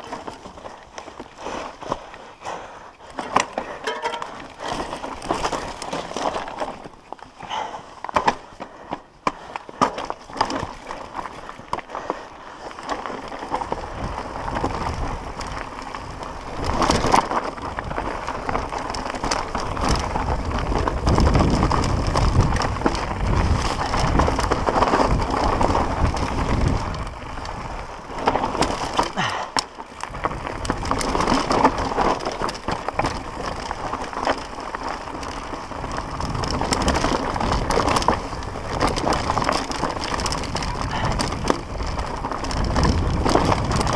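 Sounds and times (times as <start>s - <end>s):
bike rattling over bumps: 0.0s - 43.9s
tyres running over dirt and stones: 0.0s - 43.9s
wind rumble on microphone: 13.1s - 29.3s, 30.0s - 43.9s.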